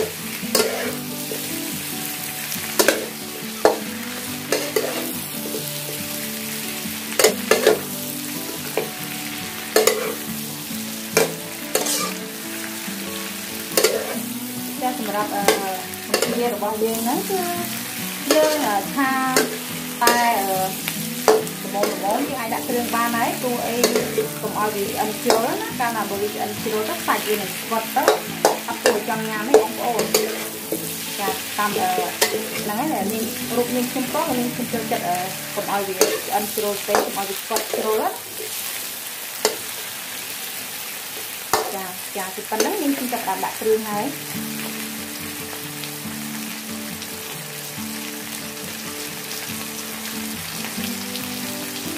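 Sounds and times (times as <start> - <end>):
metal spatula scraping wok: 0.0 - 1.5, 2.4 - 5.8, 7.1 - 8.9, 9.5 - 10.3, 11.1 - 12.4, 13.5 - 14.4, 15.2 - 17.4, 18.2 - 38.6
shrimp sizzling in oil: 0.0 - 51.9.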